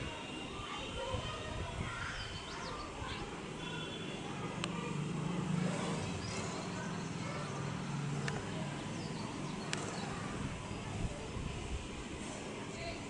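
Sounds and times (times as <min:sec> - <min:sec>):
faint distant voices: 0:00.0 - 0:13.0.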